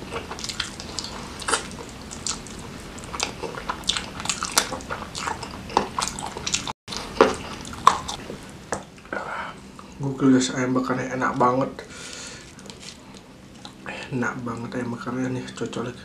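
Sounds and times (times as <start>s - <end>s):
chewing with wet smacks: 0.0s - 8.8s.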